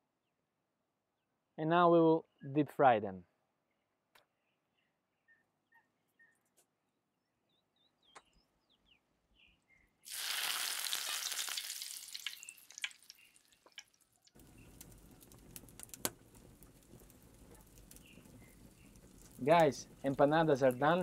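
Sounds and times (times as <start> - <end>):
dough sizzling in hot oil: 10.1 - 21.0
oil hissing and crackling: 10.1 - 21.0.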